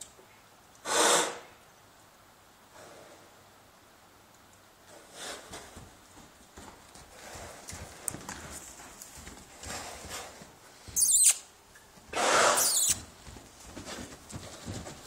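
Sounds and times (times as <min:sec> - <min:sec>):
horse breathy snort: 0:00.8 - 0:01.5, 0:05.0 - 0:05.7, 0:12.1 - 0:12.8
horse high-pitched cry: 0:00.8 - 0:01.5, 0:11.0 - 0:11.5, 0:12.1 - 0:13.1
hoofbeats on sand: 0:04.8 - 0:11.3, 0:11.9 - 0:15.0.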